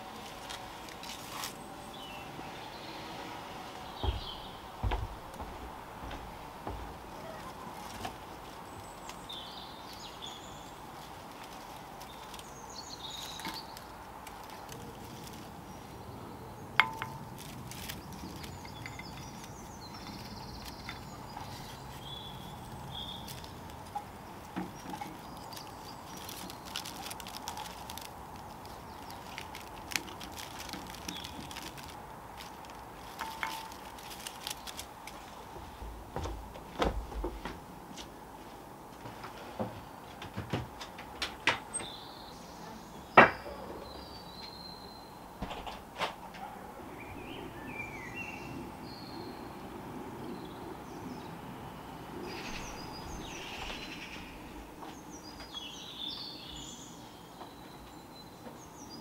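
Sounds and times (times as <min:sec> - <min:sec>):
dry palm leaves rustling: 0:00.0 - 0:40.0, 0:46.8 - 0:57.0
low thuds: 0:04.0 - 0:07.2.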